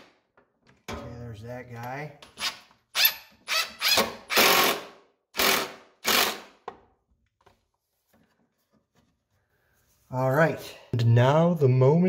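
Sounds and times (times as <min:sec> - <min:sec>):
impact driver hammering screw: 0:02.4 - 0:06.8.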